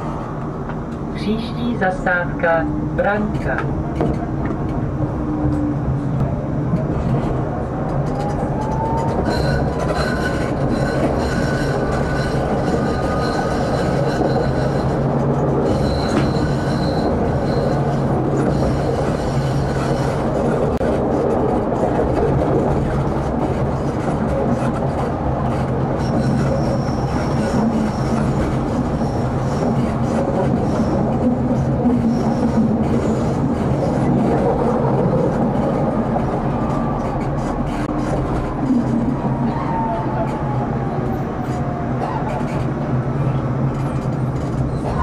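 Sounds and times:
tram rumbling along track: 0.0 - 45.0
wheel squeal: 8.7 - 15.0, 15.6 - 20.1, 26.0 - 28.4.

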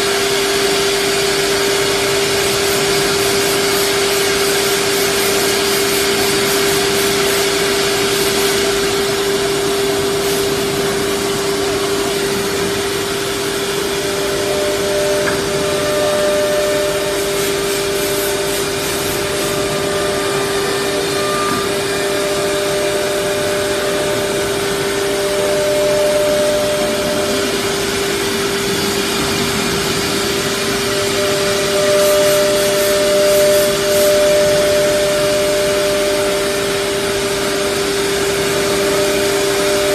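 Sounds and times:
constant machine hum: 0.0 - 39.9
high machine tone: 0.0 - 39.9
router machine noise: 0.0 - 39.9.

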